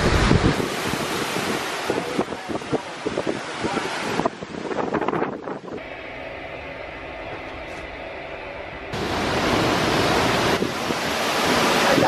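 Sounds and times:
wind buffeting microphone: 0.0s - 6.0s, 8.7s - 12.0s
hurricane wind and rain: 0.0s - 12.0s
steady hum: 5.8s - 10.7s.

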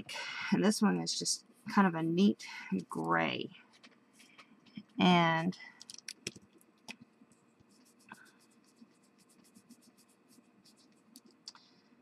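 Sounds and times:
pigment stick scribbling on card: 7.6s - 11.4s.

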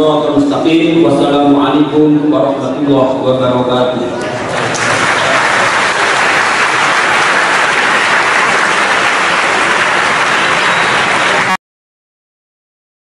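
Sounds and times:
audience applauding: 4.4s - 11.6s.

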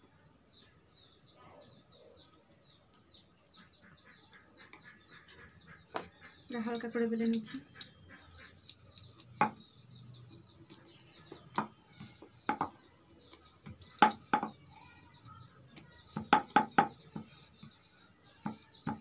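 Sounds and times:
rolling pin knocking on wooden board: 12.5s - 12.8s, 14.0s - 14.5s, 16.1s - 17.3s.

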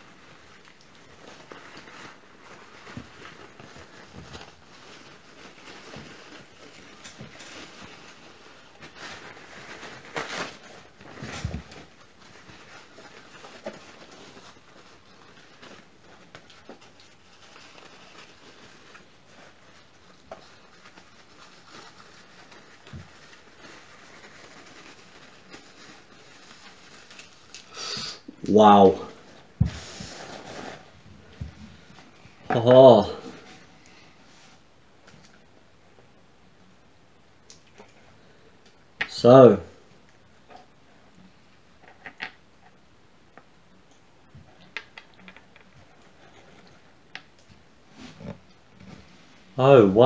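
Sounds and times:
tissue paper rustling: 0.0s - 27.8s, 28.8s - 35.5s, 45.4s - 49.6s.

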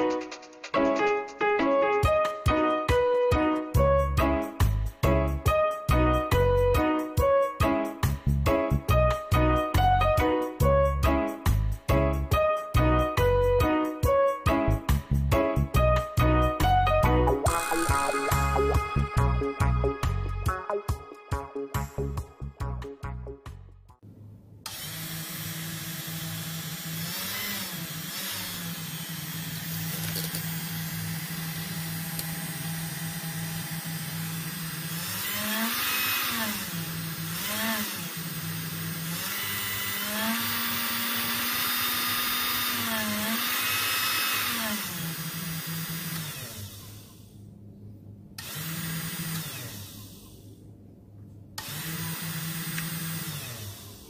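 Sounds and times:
machine motor whirring: 51.6s - 54.0s.

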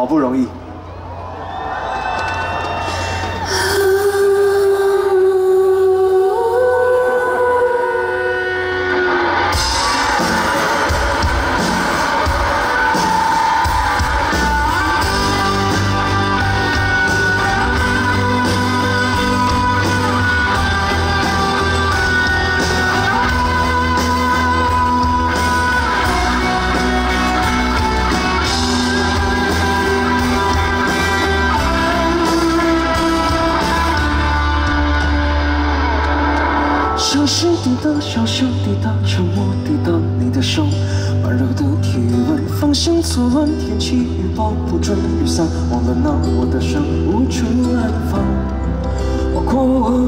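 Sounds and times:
live band playing pop-rock: 0.0s - 50.0s
bass line: 3.2s - 40.8s
electric guitar: 6.4s - 50.0s.

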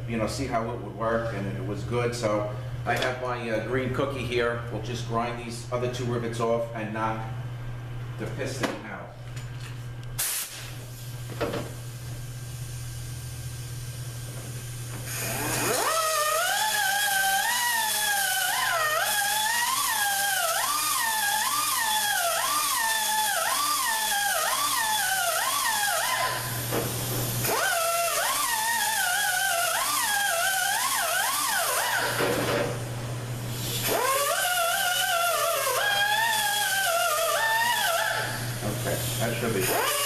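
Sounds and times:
pneumatic die grinder whine: 13.8s - 32.8s, 33.4s - 40.0s.

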